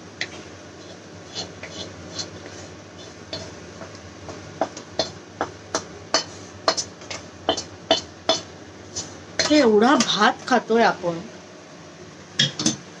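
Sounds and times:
metal spoon scraping a pan: 0.2s - 10.1s.

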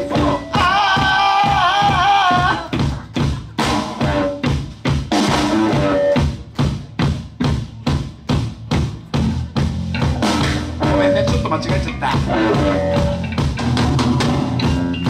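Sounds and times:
person singing: 0.0s - 3.1s, 10.8s - 13.3s
drum kit beat: 0.0s - 15.0s
electric guitars and bass: 0.0s - 15.0s.

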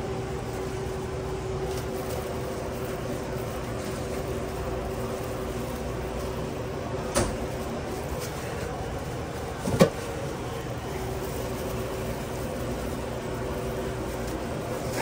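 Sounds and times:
kitchen equipment hum: 0.0s - 15.0s.

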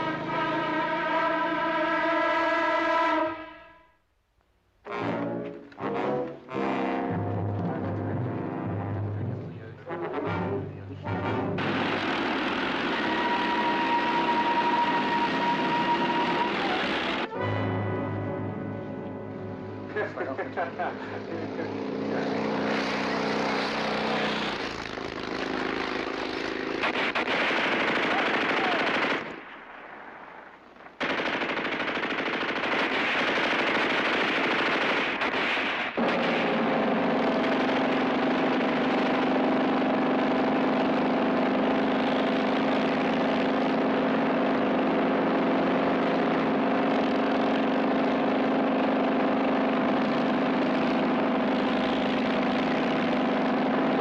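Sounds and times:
machine-gun fire: 11.6s - 17.3s, 22.6s - 41.1s
motorcycle engine running: 19.3s - 27.0s, 36.5s - 54.0s.

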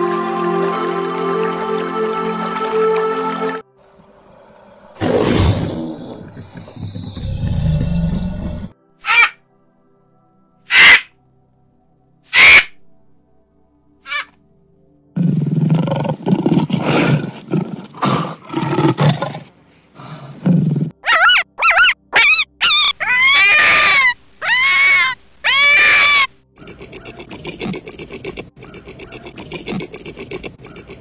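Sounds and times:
snow leopard growling: 3.9s - 8.7s, 15.2s - 21.0s, 26.6s - 31.0s
crow cawing: 9.0s - 9.4s, 10.7s - 11.1s, 12.3s - 12.7s, 14.1s - 14.3s
high wailing calls: 10.7s - 11.1s, 12.3s - 12.7s, 14.1s - 14.3s, 21.0s - 27.8s.

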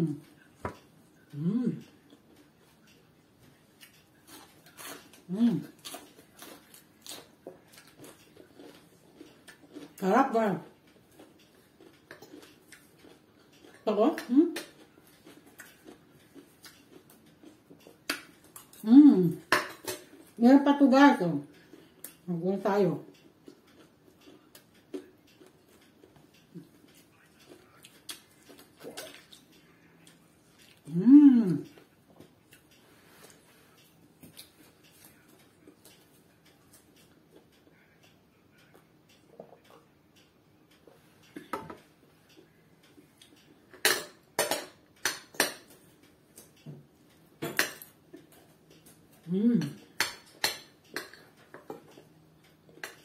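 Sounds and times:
cutlery clinking on dishes: 19.5s - 20.2s, 43.7s - 45.8s, 47.4s - 48.0s, 49.6s - 52.0s.

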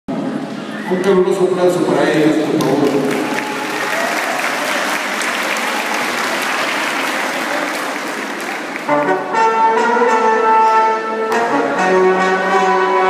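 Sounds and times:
audience applauding: 2.0s - 9.1s
orchestral music with held notes: 8.9s - 13.0s.

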